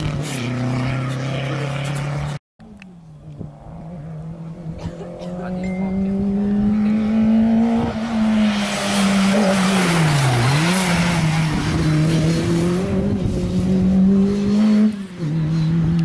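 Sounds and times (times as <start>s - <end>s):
car engine passing at speed: 3.0s - 16.0s
tyre and wind noise: 5.8s - 16.0s.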